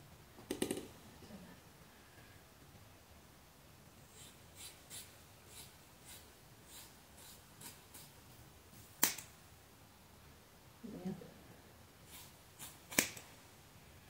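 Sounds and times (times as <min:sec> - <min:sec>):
scissors snipping hair: 0:12.6 - 0:13.3.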